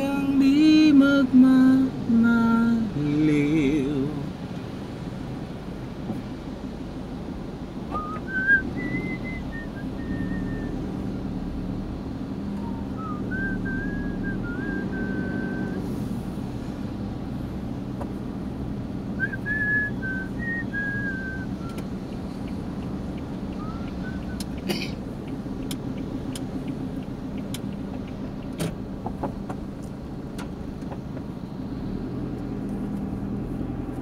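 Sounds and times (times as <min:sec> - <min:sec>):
road noise: 0:00.0 - 0:34.0
van engine hum: 0:00.0 - 0:34.0
man whistling a slow tune: 0:07.9 - 0:10.9, 0:12.6 - 0:15.8, 0:19.2 - 0:21.9, 0:23.6 - 0:24.6.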